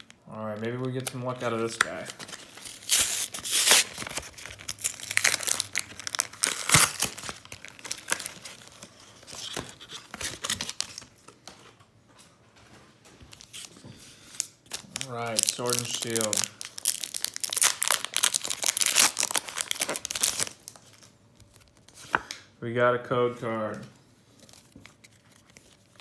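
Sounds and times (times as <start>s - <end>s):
foil wrappers crinkling: 0.0s - 11.2s, 13.3s - 22.1s
plastic packaging tearing: 0.7s - 11.1s, 14.4s - 22.2s.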